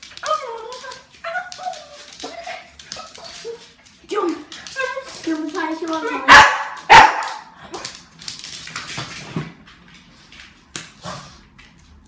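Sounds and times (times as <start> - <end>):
puppy barking: 6.0 - 7.5.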